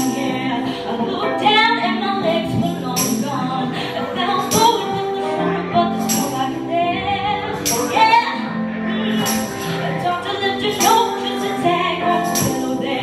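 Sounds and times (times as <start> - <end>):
keyboard chords: 0.0 - 13.0
woman singing with vibrato: 0.0 - 13.0
tambourine strikes: 3.0 - 3.3, 7.6 - 8.0, 9.2 - 9.7, 12.2 - 12.8.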